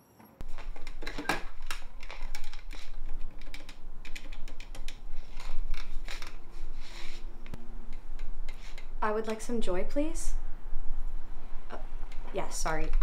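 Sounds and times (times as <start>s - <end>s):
telephone being handled and dialed: 0.4s - 6.4s.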